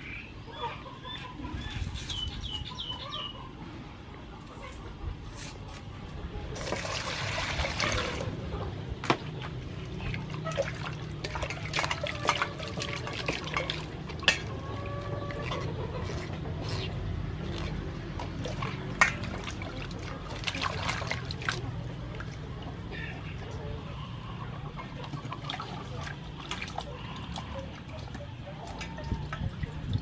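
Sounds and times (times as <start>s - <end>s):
water sloshing in a bowl: 6.6s - 23.5s, 24.9s - 30.0s.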